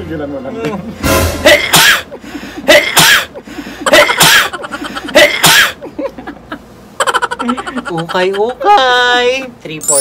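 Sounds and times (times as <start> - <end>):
man sneezing: 1.4 - 4.5, 5.1 - 5.8.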